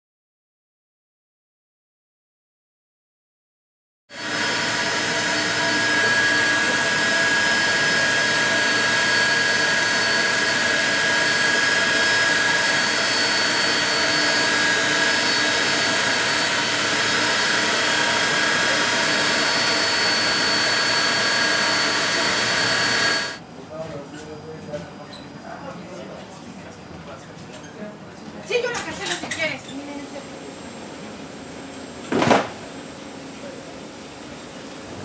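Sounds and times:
jet engines whining: 4.2s - 23.4s.

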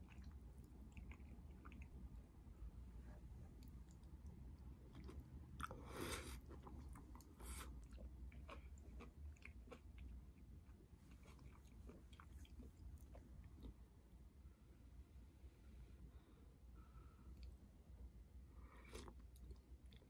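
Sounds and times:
person chewing: 4.9s - 13.8s, 18.8s - 20.0s.

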